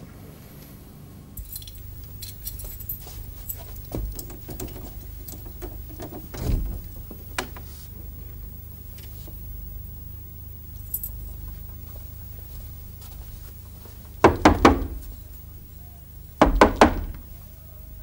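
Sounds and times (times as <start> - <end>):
keys jangling in door lock: 1.4 - 6.4, 10.8 - 11.3
door opening thump: 3.0 - 7.7, 14.2 - 15.3, 16.4 - 17.4.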